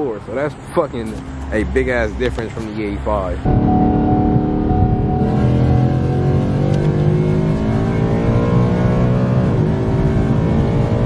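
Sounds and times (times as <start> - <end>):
car engine accelerating hard: 3.3 - 11.0.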